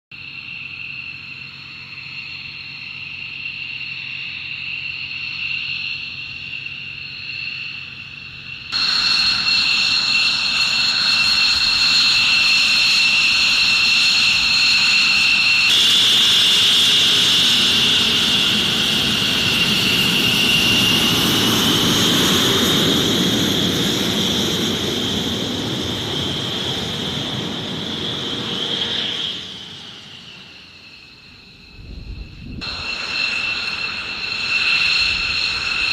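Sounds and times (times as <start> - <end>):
jet engines whining: 8.2 - 35.9.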